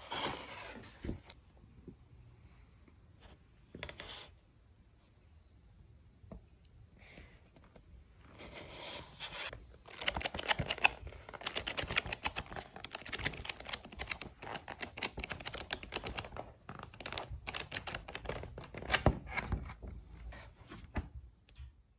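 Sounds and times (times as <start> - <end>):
pages rustling and crackling: 9.4 - 19.9.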